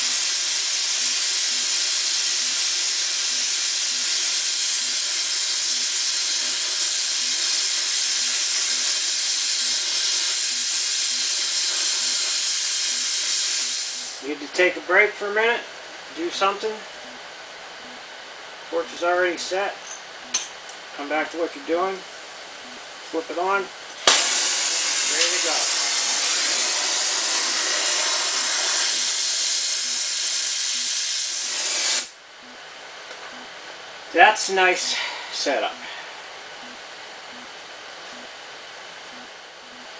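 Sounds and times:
welding torch flame hissing: 0.0s - 16.9s, 20.2s - 32.2s.

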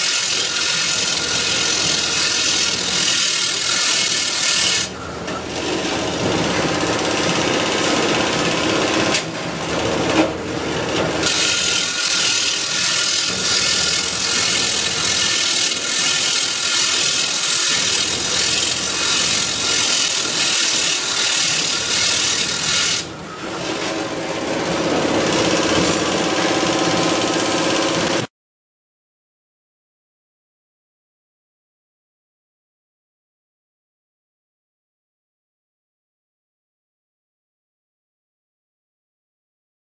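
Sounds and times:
grinding wheel grinding metal rods: 0.0s - 28.3s.

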